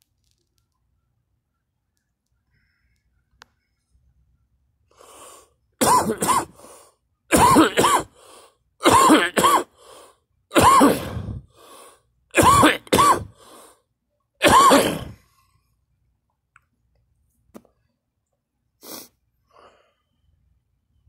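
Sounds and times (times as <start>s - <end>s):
person coughing and gagging: 5.8s - 6.6s, 7.3s - 8.2s, 8.8s - 9.8s, 10.5s - 11.5s, 12.4s - 13.4s, 14.4s - 15.2s.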